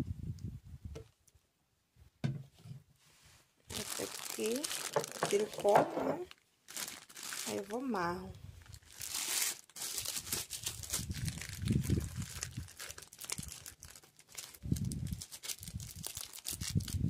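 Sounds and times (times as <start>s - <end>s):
plastic bag crinkling: 3.7s - 17.0s.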